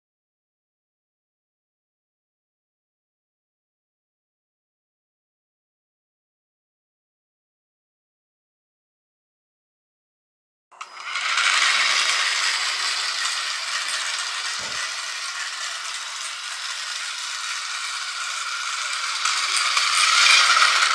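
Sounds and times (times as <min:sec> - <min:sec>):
electric model car motors whirring: 0:10.8 - 0:20.9
model car wheels rattling on stone: 0:10.8 - 0:20.9.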